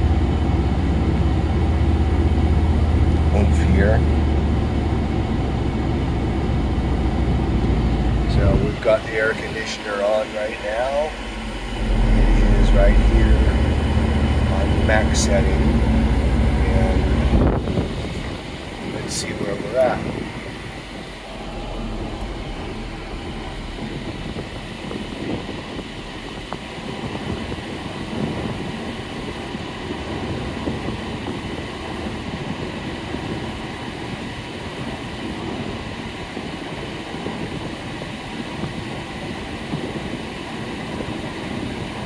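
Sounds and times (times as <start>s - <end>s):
car engine running: 0.0s - 32.2s
air conditioning rush from vents: 0.0s - 42.0s.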